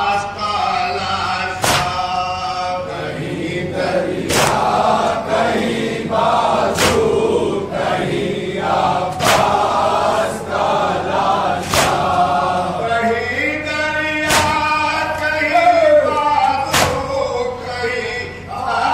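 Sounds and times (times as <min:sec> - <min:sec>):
men chanting a lament: 0:00.0 - 0:18.9
collective chest-beating: 0:08.7 - 0:12.5.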